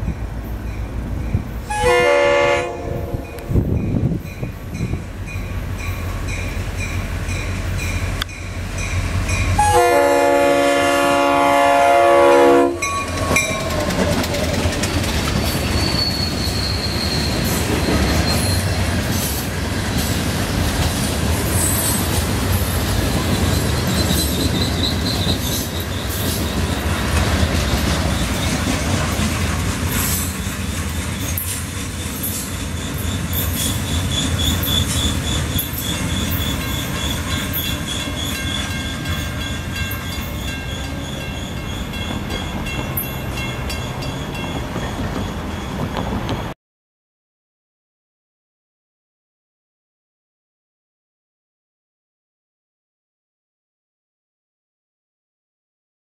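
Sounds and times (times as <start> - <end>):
crossing bell dinging: 0.0 - 11.3, 12.4 - 14.4, 33.0 - 46.6
freight train wheels rumbling: 0.0 - 46.6
locomotive horn: 1.6 - 3.6, 9.6 - 14.0
wheels squealing: 12.8 - 46.6.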